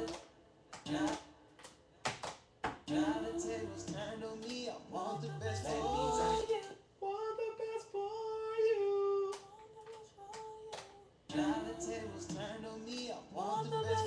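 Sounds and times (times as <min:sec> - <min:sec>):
high sung voice: 0:02.9 - 0:14.0.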